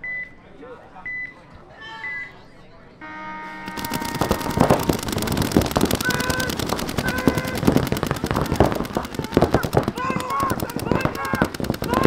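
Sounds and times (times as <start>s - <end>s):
paintball markers firing: 3.7s - 12.0s.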